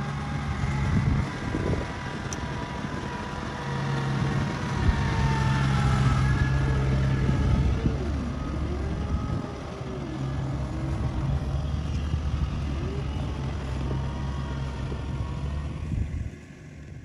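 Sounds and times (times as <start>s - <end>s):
diesel engine droning: 0.0s - 17.0s.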